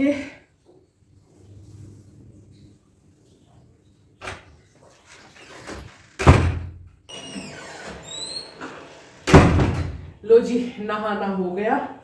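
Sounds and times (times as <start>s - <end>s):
squeaking door hinges: 4.2s - 10.1s
door thumping shut: 6.2s - 6.8s, 9.2s - 10.1s.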